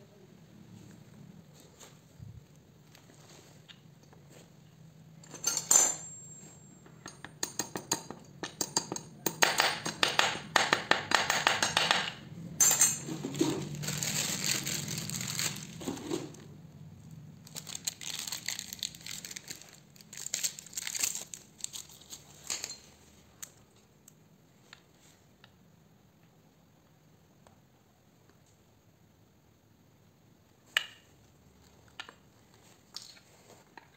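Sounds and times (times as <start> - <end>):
metal parts and tools clinking: 5.2 - 10.0, 11.5 - 16.3, 20.2 - 23.6
crinkling: 13.0 - 24.2.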